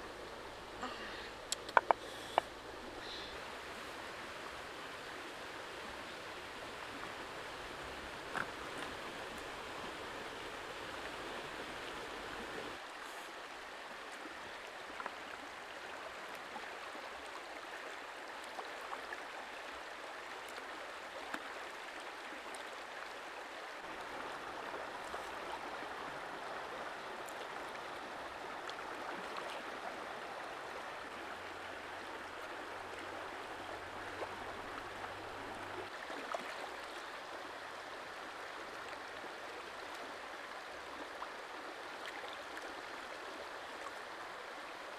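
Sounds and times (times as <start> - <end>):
stream running over stones: 0.0 - 44.9
faint ticks: 1.4 - 3.3.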